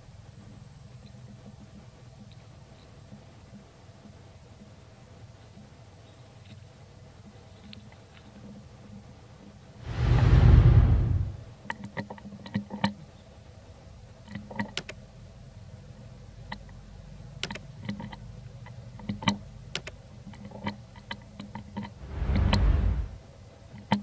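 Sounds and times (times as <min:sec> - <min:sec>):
low rumble: 0:09.8 - 0:11.5, 0:22.0 - 0:23.2.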